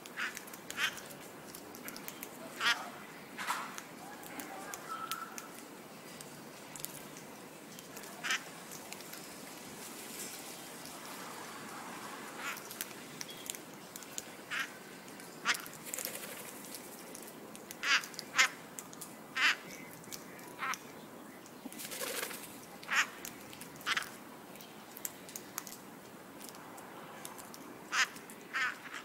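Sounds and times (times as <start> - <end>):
background hiss: 0.0 - 29.0
parakeets squawking: 2.5 - 3.0.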